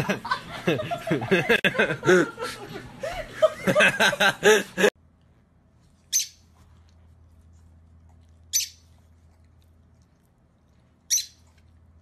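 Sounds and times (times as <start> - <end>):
person laughing: 0.0 - 4.9
lovebird chirps: 8.5 - 8.8, 11.1 - 11.4.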